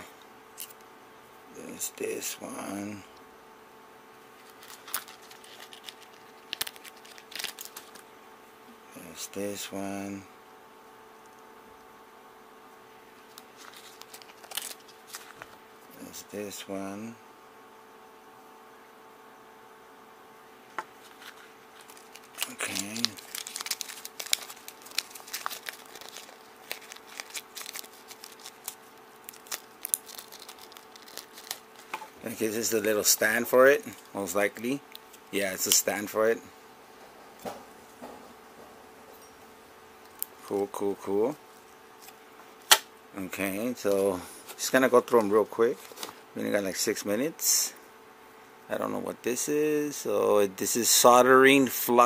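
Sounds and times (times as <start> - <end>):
faint steady hum: 0.0 - 52.0
plastic packaging crinkling: 4.4 - 8.1, 13.2 - 15.6, 21.0 - 33.2, 44.5 - 46.2.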